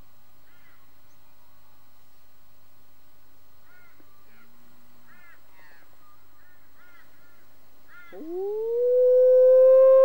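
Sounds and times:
howling call wail: 8.1 - 10.0.

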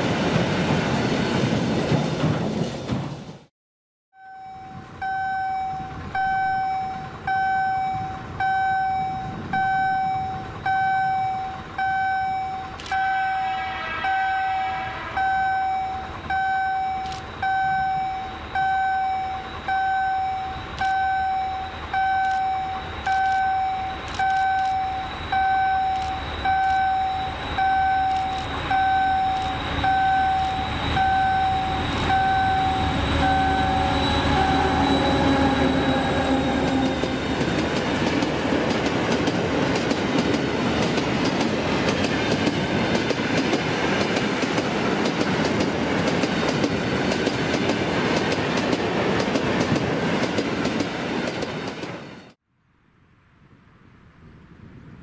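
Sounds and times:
level crossing warning ding: 4.2 - 13.3, 15.2 - 34.6
diesel locomotive rumble: 14.8 - 51.8.

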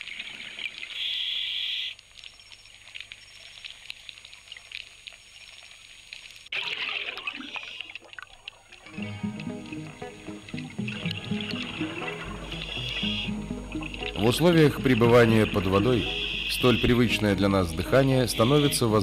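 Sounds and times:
underwater crackling and trickling: 0.0 - 16.9
rush of bubbles: 6.5 - 9.0.

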